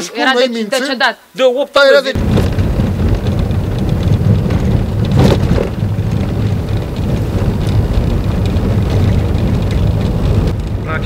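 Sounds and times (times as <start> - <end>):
tyres rumbling on rough road: 2.2 - 11.0.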